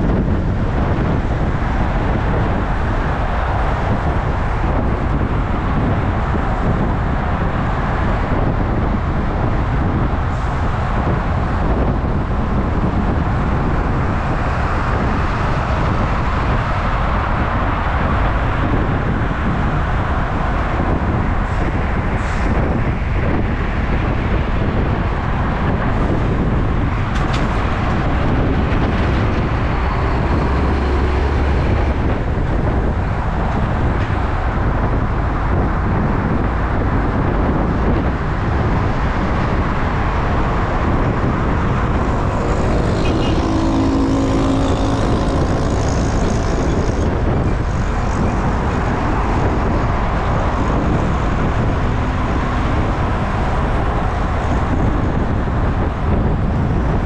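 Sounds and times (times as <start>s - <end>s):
passing vehicle engine: 0.0s - 57.0s
wind and road noise: 0.0s - 57.0s.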